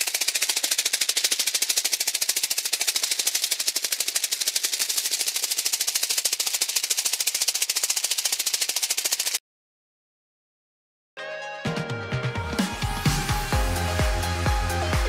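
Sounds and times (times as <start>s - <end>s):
insect wings fluttering: 0.0s - 9.4s.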